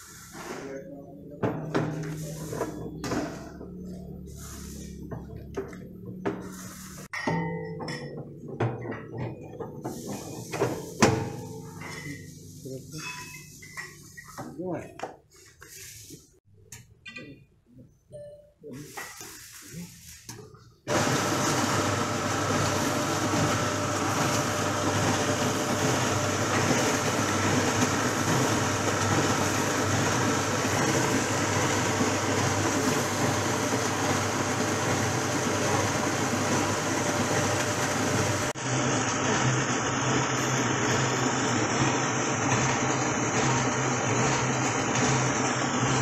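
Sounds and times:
ice cream machine motor running: 0:20.9 - 0:46.0.

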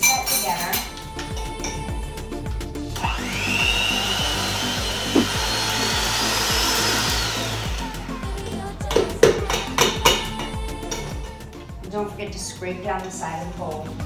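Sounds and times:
electric hand mixer whining: 0:03.0 - 0:08.4
beaters clanking against metal bowl: 0:08.9 - 0:11.2.

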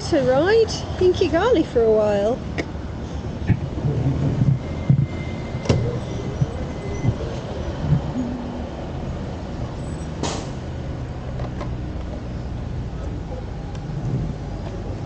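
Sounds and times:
small motorbike engine rumbling: 0:05.6 - 0:10.0.

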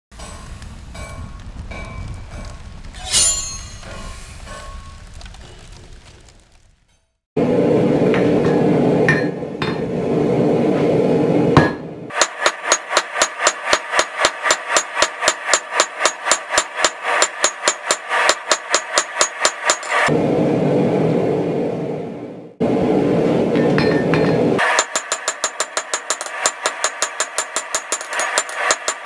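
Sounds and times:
hammer ringing on anvil: 0:08.1 - 0:09.9, 0:23.6 - 0:29.0.

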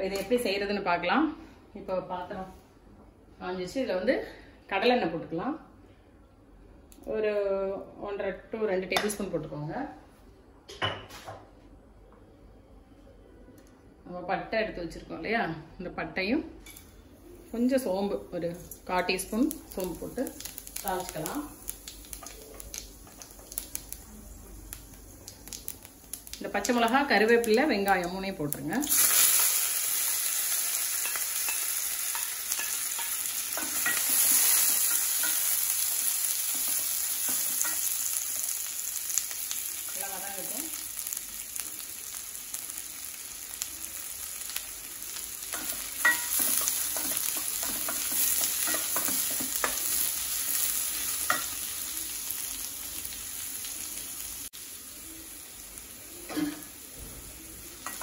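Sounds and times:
onions sizzling in hot oil: 0:17.4 - 0:58.0.

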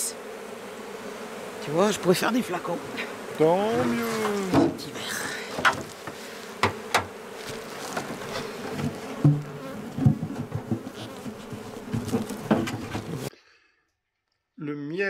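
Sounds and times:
bees buzzing: 0:00.0 - 0:13.3
knocks on metal hive roof: 0:03.7 - 0:04.9, 0:05.6 - 0:07.2, 0:08.7 - 0:13.3.

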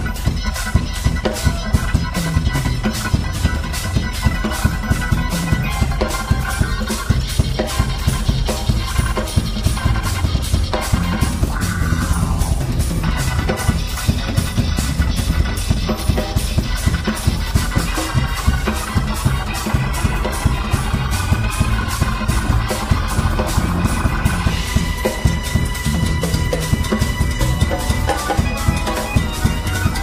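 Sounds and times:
busy drum kit: 0:00.0 - 0:30.0
live jazz fusion band: 0:00.0 - 0:30.0.

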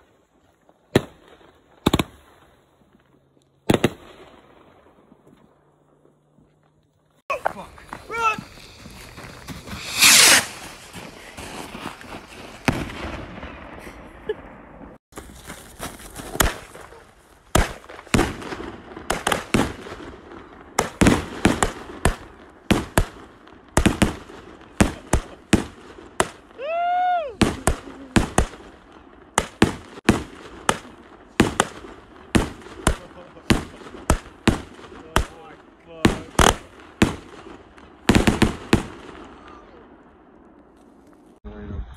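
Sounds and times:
firework bangs: 0:03.6 - 0:05.2, 0:07.4 - 0:15.0, 0:16.3 - 0:26.6, 0:27.3 - 0:40.4
firework hissing rush: 0:07.8 - 0:13.9.

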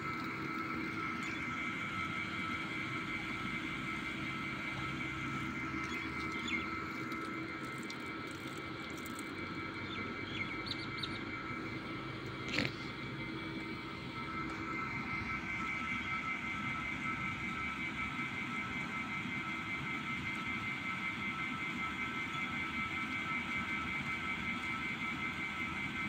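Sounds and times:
steady machine drone: 0:00.0 - 0:26.0
faint bird chirps: 0:09.8 - 0:11.5.

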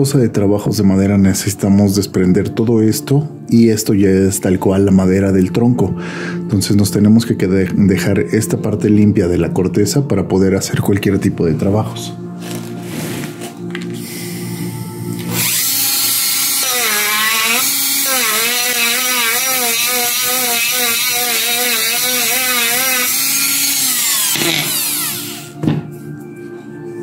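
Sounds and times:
rotary tool grinding wood: 0:15.2 - 0:25.5.

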